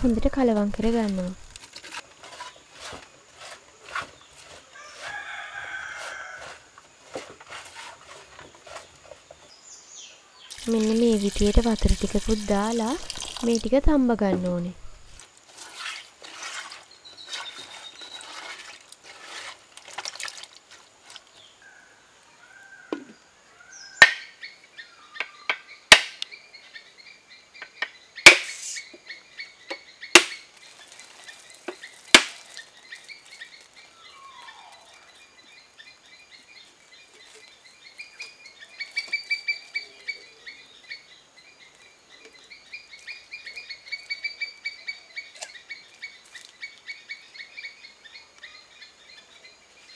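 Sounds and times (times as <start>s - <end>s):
insects chirring: 0.0s - 49.9s.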